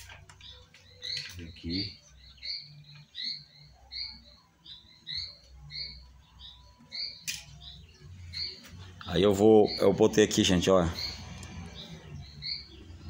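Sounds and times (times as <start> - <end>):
small bird chirping: 0.0 - 10.2, 10.8 - 13.0
sharp click: 7.2 - 7.5.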